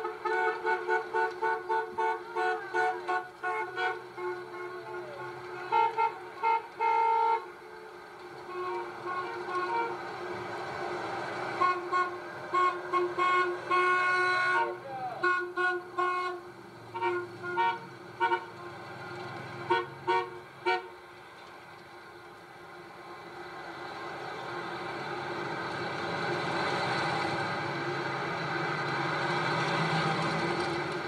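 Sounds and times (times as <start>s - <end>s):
vehicle horns honking: 0.0s - 7.6s, 8.4s - 10.1s, 11.5s - 18.9s, 19.6s - 21.0s
passing traffic: 0.0s - 31.0s.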